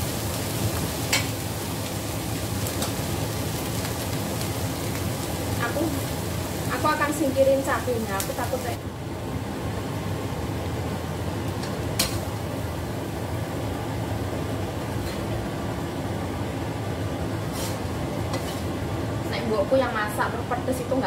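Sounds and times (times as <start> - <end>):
steady hum: 0.0 - 21.0
metal spatula scraping a pan: 17.5 - 18.8.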